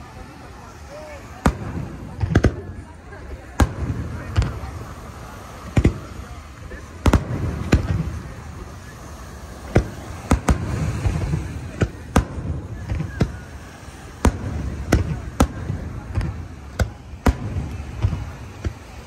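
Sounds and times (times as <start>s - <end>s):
fireworks bursting with bangs: 0.0s - 19.0s.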